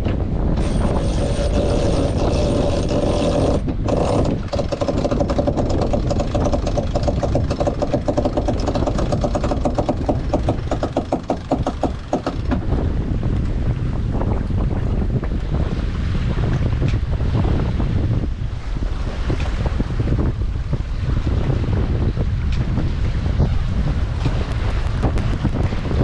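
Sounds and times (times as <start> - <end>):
wind noise on microphone: 0.0 - 26.0
winch ratchet whirring: 0.6 - 12.6
winch clicking: 0.6 - 12.7.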